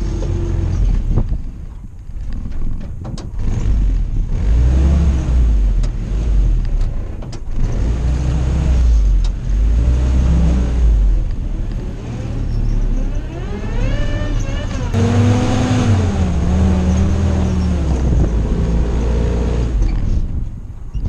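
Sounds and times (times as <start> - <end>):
engine revving under load: 3.4 - 20.4.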